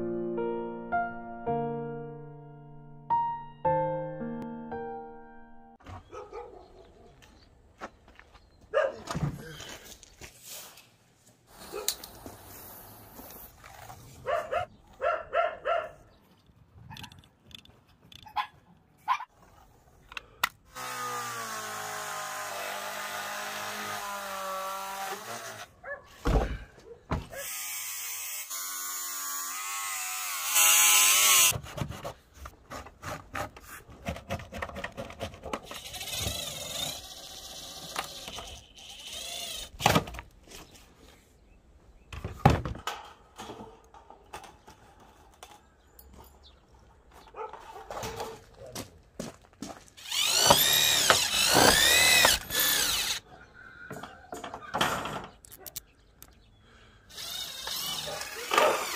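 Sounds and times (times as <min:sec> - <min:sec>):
cordless drill driving screws: 0:27.4 - 0:31.5, 0:35.6 - 0:40.0, 0:50.0 - 0:53.2, 0:57.1 - 0:58.9
circular saw cutting steel: 0:50.0 - 0:53.2.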